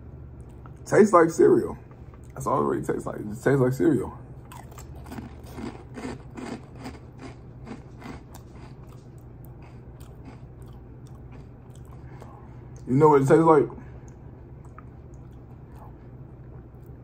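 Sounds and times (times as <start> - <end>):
cereal crunching while chewed: 4.4 - 12.2.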